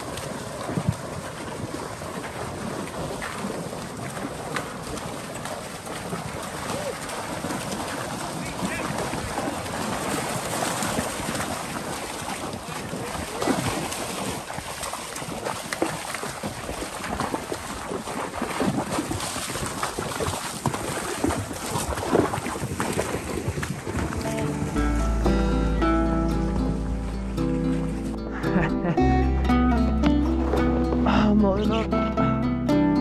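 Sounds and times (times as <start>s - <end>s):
wind on microphone: 0.0s - 5.2s, 16.5s - 24.9s
hooves crunching and splashing: 0.0s - 31.8s.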